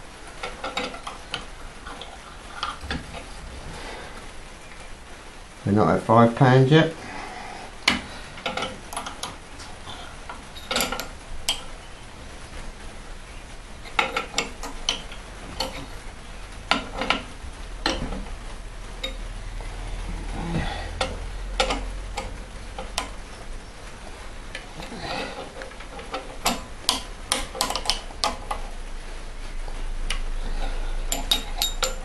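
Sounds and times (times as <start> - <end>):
low hum: 0.0 - 5.8, 6.9 - 27.4
light metallic clicks and clinks: 31.1 - 32.0.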